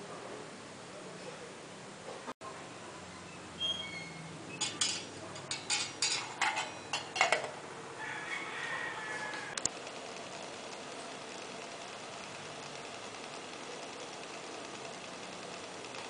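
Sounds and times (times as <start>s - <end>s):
metal lid clinking on pot: 4.6s - 7.5s.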